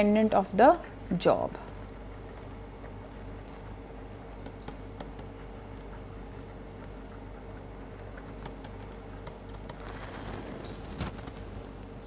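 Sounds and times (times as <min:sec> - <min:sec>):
stylus scratching on tablet: 0:00.0 - 0:11.8
low electrical hum: 0:00.0 - 0:12.0.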